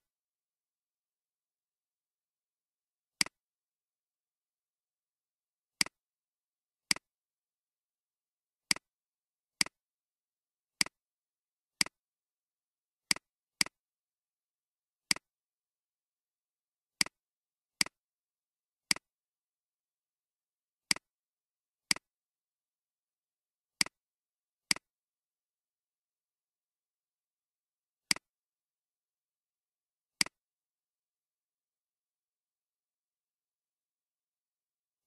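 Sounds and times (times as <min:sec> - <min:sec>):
computer mouse clicks: 0:08.7 - 0:08.9, 0:18.9 - 0:19.1, 0:23.8 - 0:24.0, 0:28.1 - 0:28.3.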